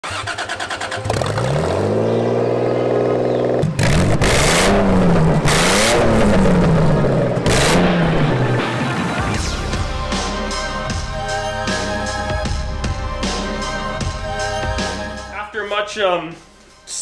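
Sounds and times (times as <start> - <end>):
car engine starting and revving: 0.0 - 9.9.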